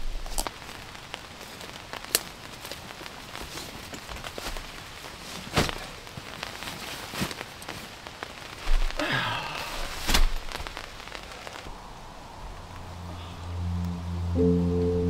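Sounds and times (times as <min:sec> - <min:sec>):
rain pattering on canvas: 0:00.0 - 0:13.0
low music: 0:13.0 - 0:15.0.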